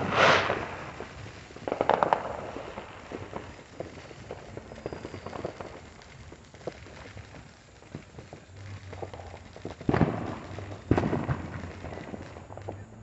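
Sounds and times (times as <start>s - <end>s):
loud firework bang with echo: 0.0s - 3.9s, 8.9s - 12.8s
distant firecracker pops and crackles: 0.0s - 13.0s.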